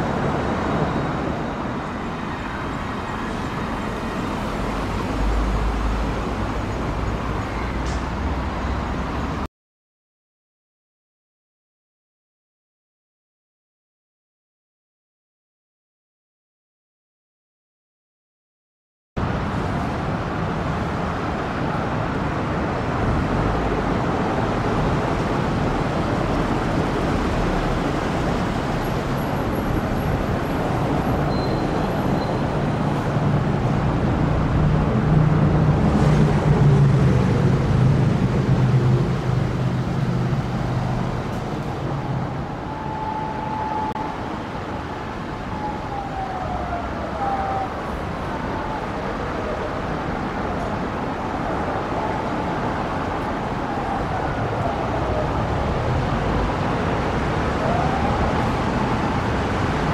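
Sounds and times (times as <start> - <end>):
distant police siren wailing: 0.0 - 6.1, 40.1 - 59.9
road traffic noise: 0.0 - 9.5, 19.2 - 59.9.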